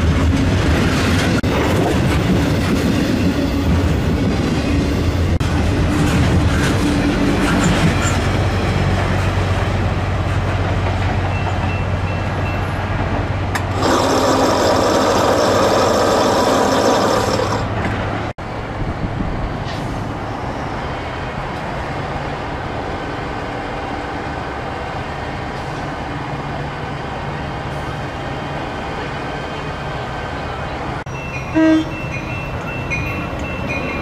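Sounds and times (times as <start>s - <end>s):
train rumbling by: 0.0s - 34.0s
train horn chord: 31.5s - 32.0s.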